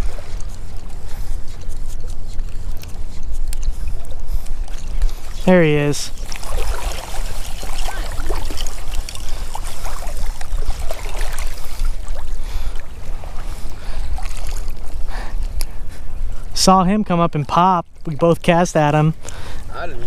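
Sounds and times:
wind rumbling on microphone: 0.0s - 17.0s
water lapping and splashing: 0.0s - 20.0s
small splashes: 4.6s - 15.0s.

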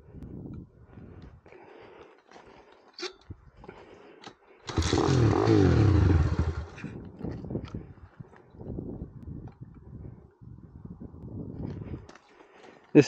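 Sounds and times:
minibike engine revving: 4.7s - 7.0s.

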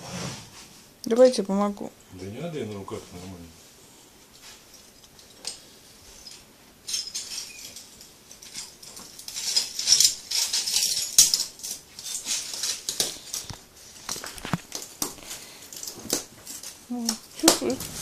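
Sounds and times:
broken glass crunching: 6.9s - 13.4s.

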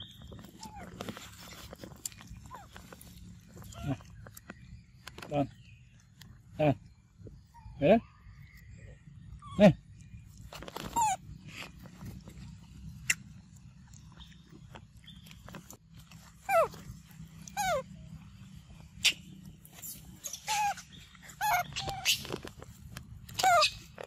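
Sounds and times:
macaques calling: 17.4s - 18.0s, 19.0s - 22.5s, 23.3s - 24.0s.

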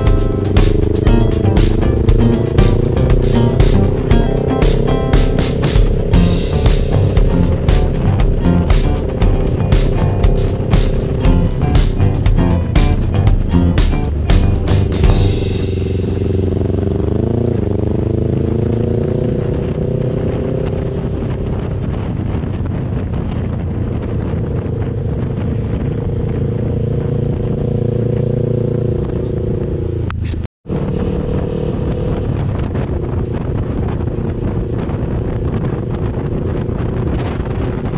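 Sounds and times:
motorcycle engine cruising: 0.0s - 37.9s
wind noise on microphone: 18.8s - 37.9s.

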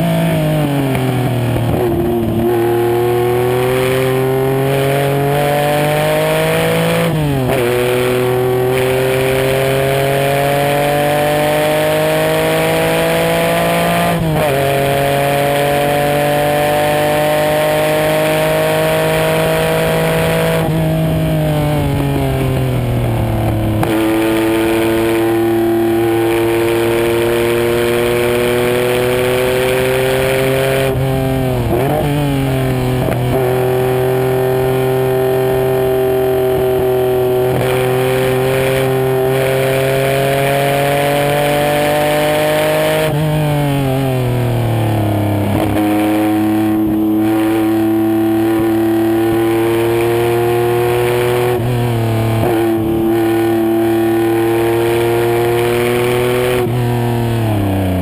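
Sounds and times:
race car engine revving: 0.0s - 58.0s.

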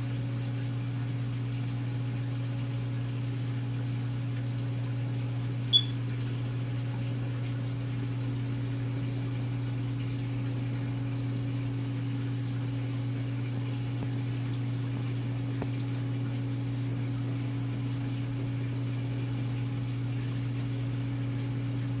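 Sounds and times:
aquarium pump humming: 0.0s - 22.0s
short high beep: 5.7s - 6.0s.

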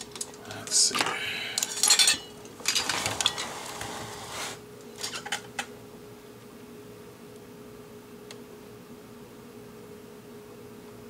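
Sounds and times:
plastic clatter and rustling: 0.0s - 4.3s
faint steady hum: 0.0s - 11.0s.

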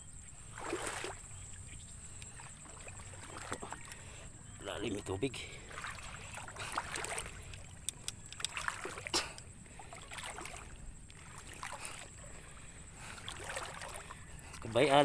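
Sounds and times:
water sloshing from wading: 0.0s - 15.0s
small splashes: 0.4s - 1.4s, 2.2s - 4.3s, 5.5s - 15.0s
small clicks: 7.5s - 8.7s.

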